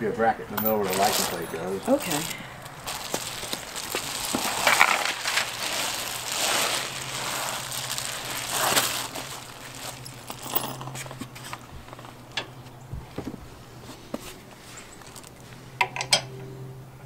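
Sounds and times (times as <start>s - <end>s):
small metallic clinks: 0.6s - 4.1s, 7.8s - 11.2s
foil sheet crinkling and rustling: 0.7s - 11.6s.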